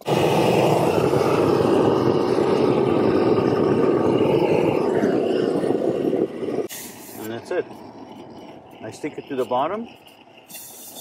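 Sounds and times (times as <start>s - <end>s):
gas torch roaring: 0.0s - 11.0s.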